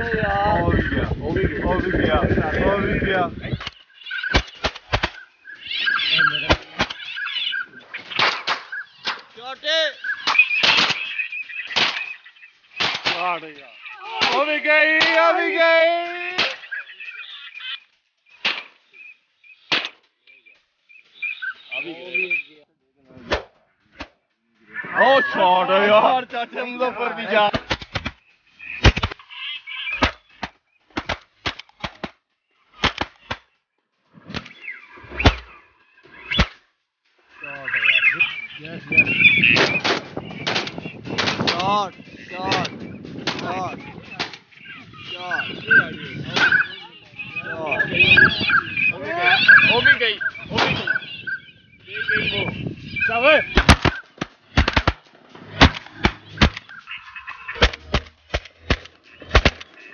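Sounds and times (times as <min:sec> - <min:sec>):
pitched calls: 0:00.0 - 0:59.9
shotgun shots: 0:03.6 - 0:05.2, 0:08.0 - 0:09.4, 0:10.2 - 0:12.2, 0:12.8 - 0:13.4, 0:18.4 - 0:18.8, 0:19.7 - 0:20.0, 0:28.8 - 0:29.2, 0:32.8 - 0:33.5, 0:34.3 - 0:35.5, 0:39.5 - 0:41.7, 0:42.5 - 0:43.5, 0:50.5 - 0:50.9, 0:53.5 - 0:56.7, 0:57.6 - 0:59.8.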